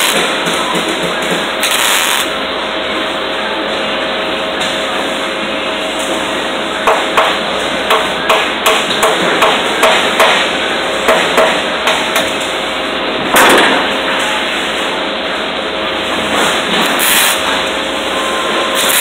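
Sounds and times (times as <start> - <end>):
shop machinery hum: 0.0 - 19.0
hammer striking metal: 6.8 - 10.5, 11.1 - 12.3.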